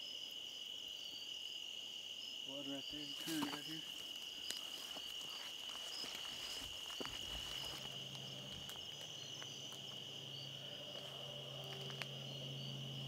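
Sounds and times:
crickets and insects trilling: 0:00.0 - 0:13.0
low steady hum: 0:06.5 - 0:13.0.

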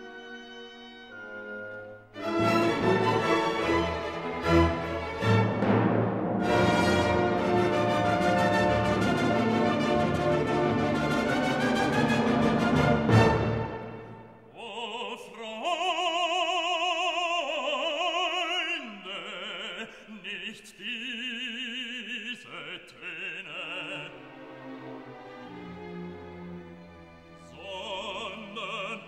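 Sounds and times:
orchestral music: 0:00.0 - 0:14.5, 0:23.4 - 0:29.0
operatic singer holding long notes: 0:14.4 - 0:24.5, 0:27.4 - 0:29.0.

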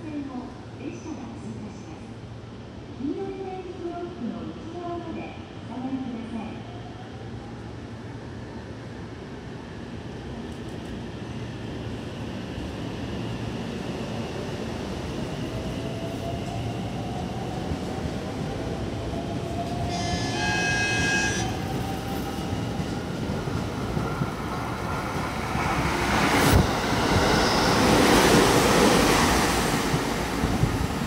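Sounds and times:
train running past: 0:11.4 - 0:31.0
train horn blast: 0:19.9 - 0:21.6.

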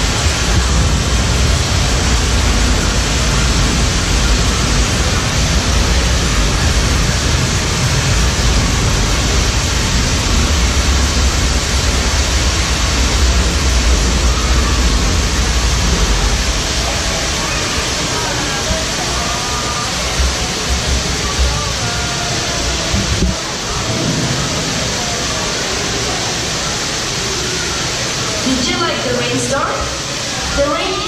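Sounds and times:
low rumble: 0:00.0 - 0:17.4
waterfall pouring: 0:00.0 - 0:31.0.

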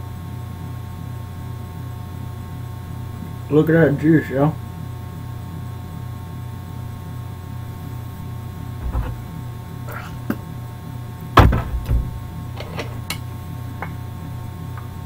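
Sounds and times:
low electrical hum: 0:00.0 - 0:15.0
short knocks and clicks: 0:08.8 - 0:09.4, 0:11.4 - 0:12.3.

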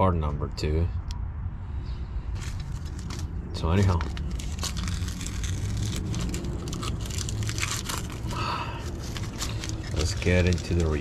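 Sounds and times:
low steady hum: 0:00.0 - 0:11.0
crinkling and rustling handling: 0:02.3 - 0:11.0.

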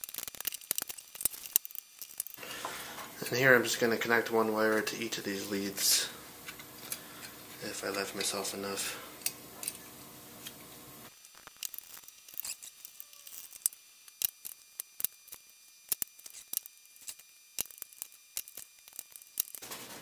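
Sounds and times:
metal wire strands rattling: 0:00.0 - 0:02.4, 0:11.2 - 0:20.0.

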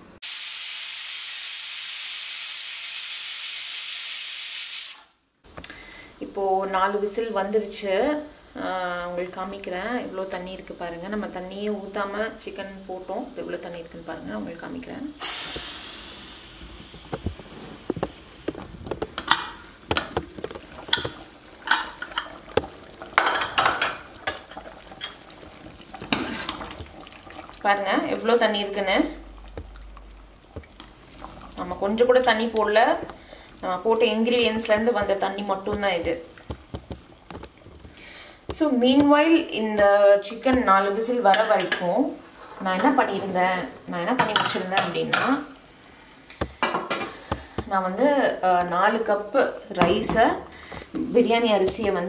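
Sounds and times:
pressure cooker whistling: 0:00.2 - 0:05.1
metal ladle scraping pot: 0:16.6 - 0:28.3.

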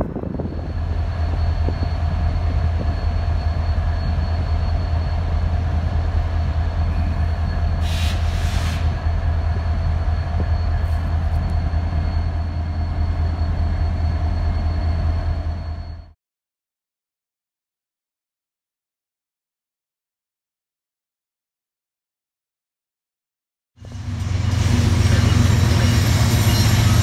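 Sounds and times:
brief hiss: 0:07.8 - 0:08.9
locomotives idling: 0:23.8 - 0:27.0.

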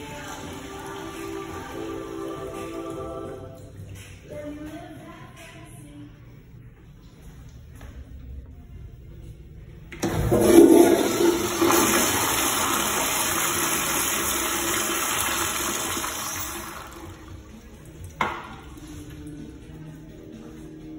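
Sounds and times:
toilet flushing: 0:00.0 - 0:03.5, 0:10.0 - 0:19.3.

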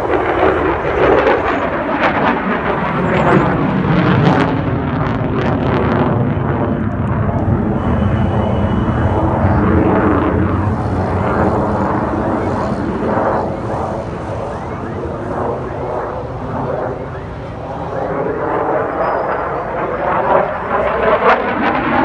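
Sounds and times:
fighter jet engine roar: 0:00.0 - 0:22.0.

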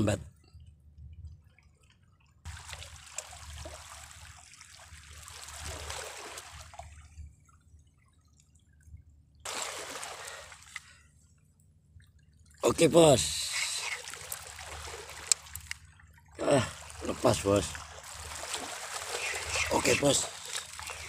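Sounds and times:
waves splashing among rocks: 0:16.8 - 0:21.0.

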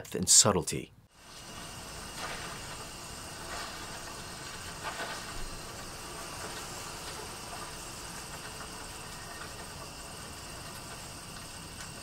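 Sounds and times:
background hiss: 0:00.0 - 0:12.0
soft crackles: 0:01.2 - 0:09.8
faint insect chirring: 0:01.2 - 0:12.0.

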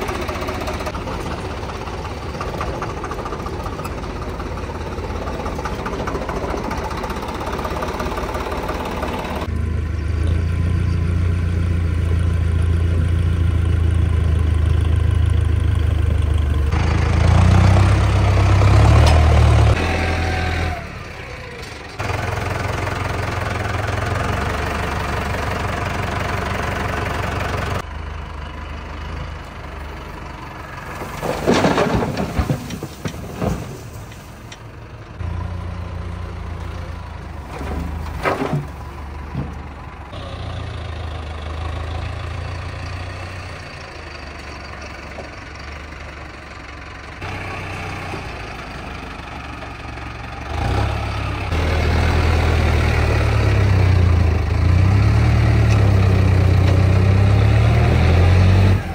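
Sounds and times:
diesel tractor engine running: 0:00.0 - 0:58.9
clattering knocks: 0:31.0 - 0:34.2.

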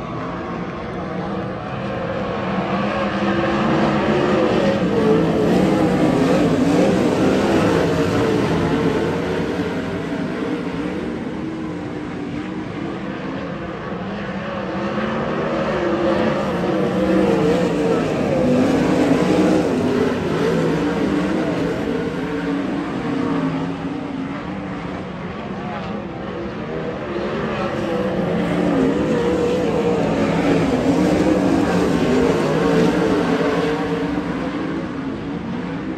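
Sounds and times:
racing car engines: 0:00.0 - 0:35.9.

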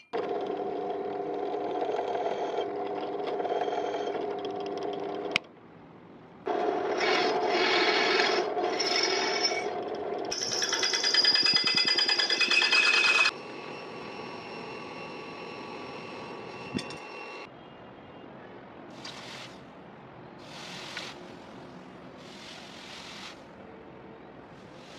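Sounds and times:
drill bit grinding on steel: 0:06.5 - 0:17.5
steady hum: 0:13.3 - 0:17.5.

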